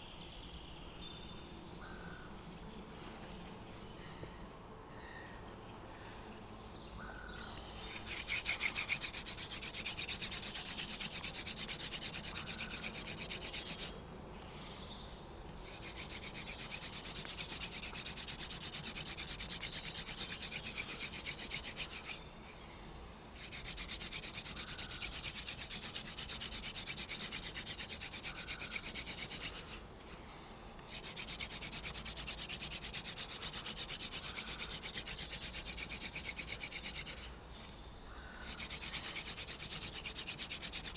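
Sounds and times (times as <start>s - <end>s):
hand drill rasping on wood: 7.9s - 13.9s, 15.6s - 22.2s, 23.4s - 29.9s, 30.9s - 37.3s, 38.4s - 40.9s.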